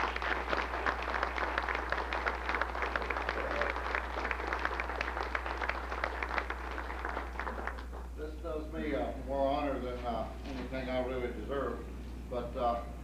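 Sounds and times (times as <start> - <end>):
audience applauding: 0.0 - 8.1
low steady hum: 0.0 - 13.0.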